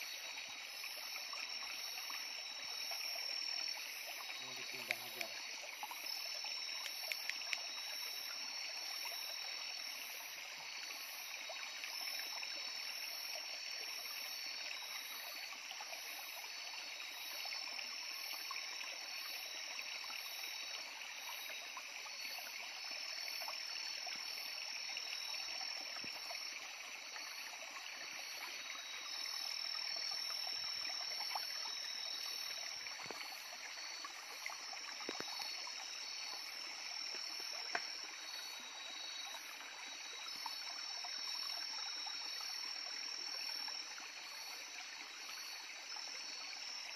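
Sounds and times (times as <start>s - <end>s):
high-pitched night insect calls: 0.0s - 46.9s
stream water flowing: 0.0s - 46.9s
faint clicks: 4.8s - 5.4s, 6.8s - 7.6s, 35.0s - 35.6s.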